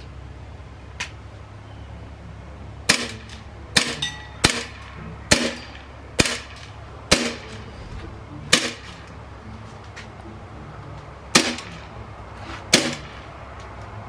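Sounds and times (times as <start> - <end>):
bb pistol shots popping: 2.9 - 5.6, 6.2 - 7.6, 8.5 - 8.9, 11.3 - 11.8, 12.7 - 13.2.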